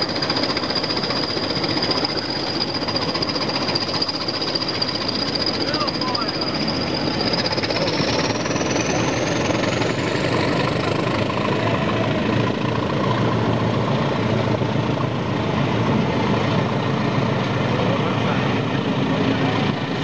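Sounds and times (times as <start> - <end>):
faint high whine: 0.0 - 12.8
diesel locomotive engine: 0.0 - 20.0.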